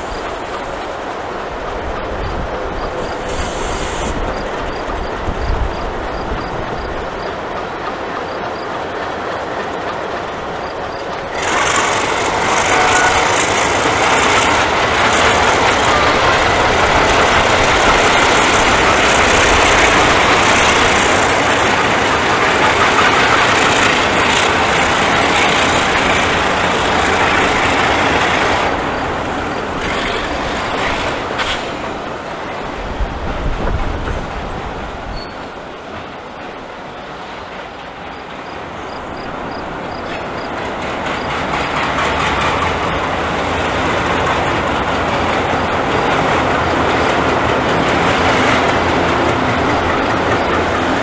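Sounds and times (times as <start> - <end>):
diesel locomotive engines running: 0.0 - 51.0
wheels clattering on rail: 0.0 - 51.0.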